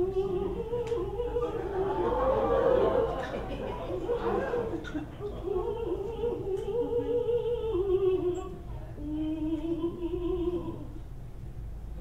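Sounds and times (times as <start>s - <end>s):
woman singing unaccompanied: 0.0s - 2.2s, 2.8s - 11.0s.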